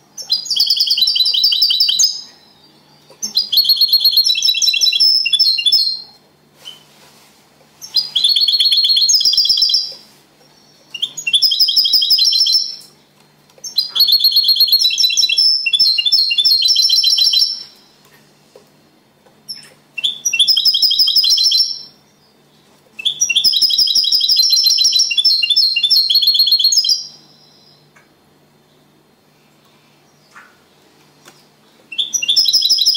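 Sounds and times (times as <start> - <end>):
goldfinch singing trilled phrases: 31.9 - 32.9.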